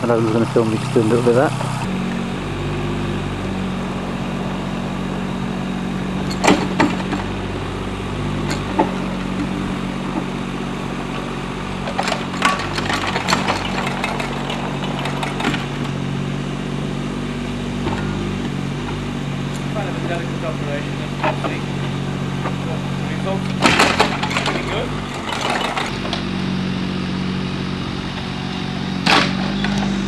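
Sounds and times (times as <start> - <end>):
excavator engine running: 0.0 - 30.0
clanks and rattles: 6.1 - 16.1, 17.8 - 26.3, 29.0 - 30.0.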